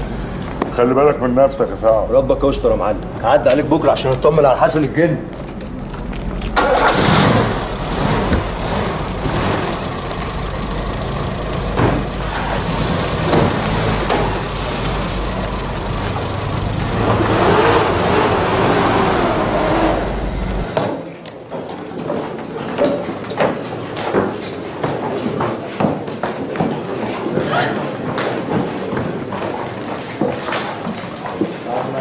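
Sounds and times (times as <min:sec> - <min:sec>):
vehicle engine rumbling: 0:00.0 - 0:20.9
street noise: 0:00.0 - 0:32.0.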